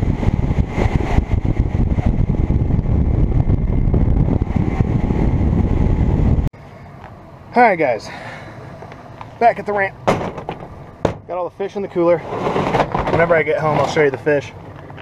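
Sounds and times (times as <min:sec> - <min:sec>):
wind on microphone: 0:00.0 - 0:06.5
outdoor background: 0:00.0 - 0:15.0.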